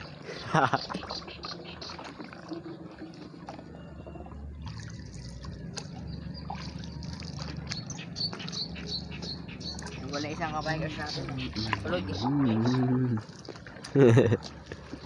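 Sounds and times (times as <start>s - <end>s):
paddle strokes in water: 0.0s - 15.0s
water dripping off paddle: 0.0s - 15.0s
steady low rumble: 3.7s - 12.4s.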